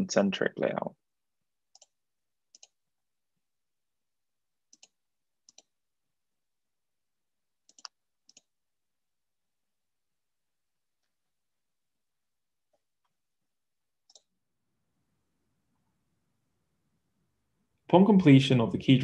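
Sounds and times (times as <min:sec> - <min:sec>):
computer mouse clicks: 0:01.7 - 0:02.8, 0:04.7 - 0:05.7, 0:07.6 - 0:08.5, 0:14.0 - 0:14.3.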